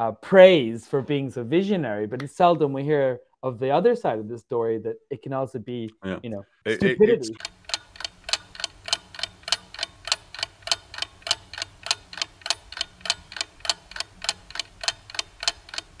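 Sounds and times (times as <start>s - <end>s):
mechanical ticking: 7.4s - 16.0s.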